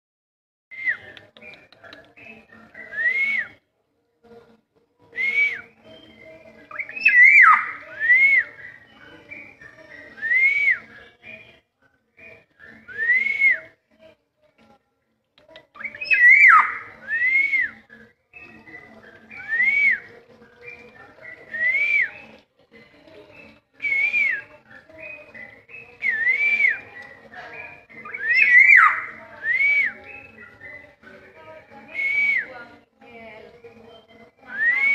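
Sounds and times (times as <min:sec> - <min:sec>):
bird wavering call: 0:06.8 - 0:07.8, 0:15.9 - 0:16.9.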